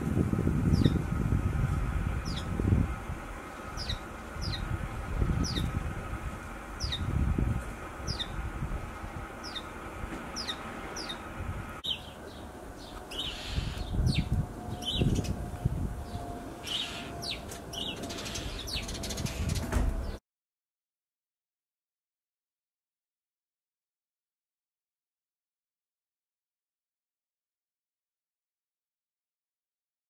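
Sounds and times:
low rumble: 0.0 - 16.4
high bird chirps: 3.7 - 4.7, 6.8 - 7.1, 8.0 - 8.4, 9.4 - 9.7, 10.4 - 11.2, 11.8 - 15.4, 16.0 - 20.2.

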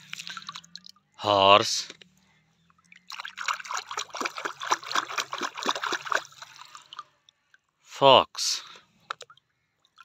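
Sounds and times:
water splashing in plastic tub: 0.0 - 1.2, 2.8 - 7.2.

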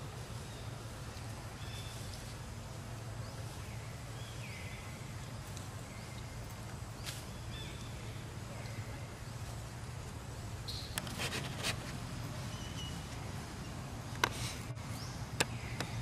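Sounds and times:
steady low hum: 0.0 - 16.0
clicks and rustles: 10.9 - 12.0.

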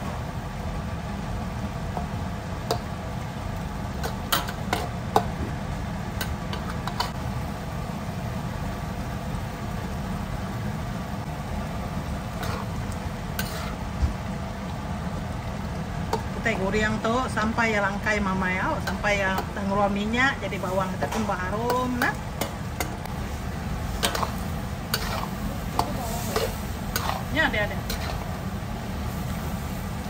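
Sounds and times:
steady low hum: 0.0 - 30.0
metal spatula scraping wok: 6.2 - 7.2, 12.3 - 13.8, 20.5 - 28.4.

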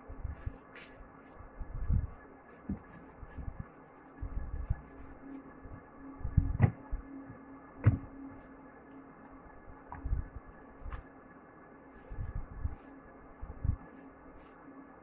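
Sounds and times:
faint steady hum: 0.0 - 15.0
phone handling bumps and rustles: 6.4 - 6.9, 7.8 - 8.1.

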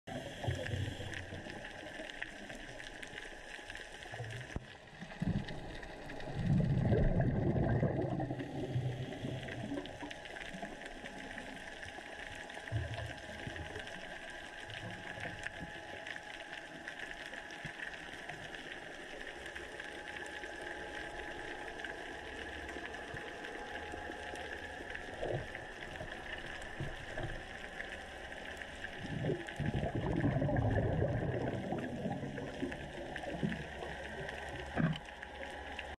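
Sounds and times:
underwater hiss: 0.1 - 2.5, 8.0 - 11.8
diver's exhaled bubbles rumbling: 4.2 - 10.0, 28.5 - 35.5.

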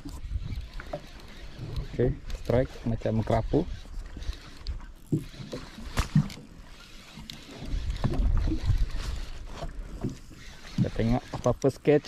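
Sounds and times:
wind rumbling on microphone: 0.0 - 0.9, 7.6 - 10.2.

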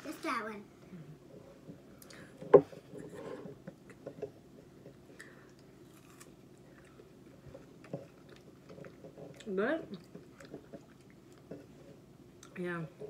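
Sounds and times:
biting and chewing fruit: 3.9 - 12.6.

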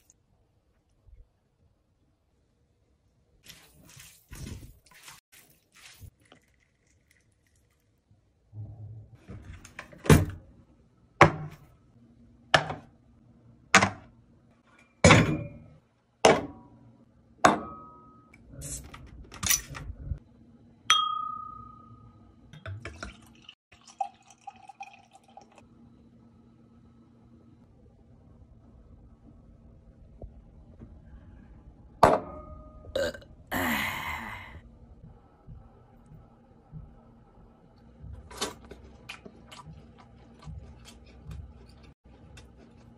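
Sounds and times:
beer pouring into a glass: 22.8 - 25.6.

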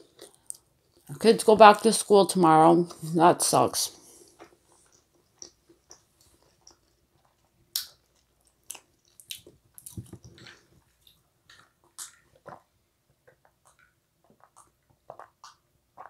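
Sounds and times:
chewing with mouth clicks: 4.2 - 16.0.

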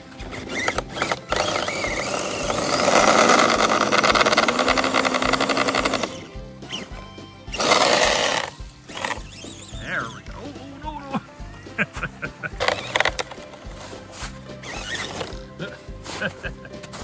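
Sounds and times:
tyres spinning in snow: 0.0 - 7.0, 12.5 - 17.0
rc car motor whirring: 0.0 - 10.2, 12.6 - 14.0, 14.6 - 15.5.

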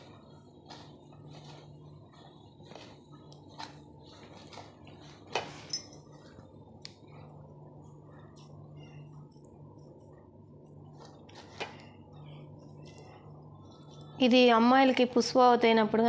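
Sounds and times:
hands kneading gritty mixture: 0.0 - 5.6.

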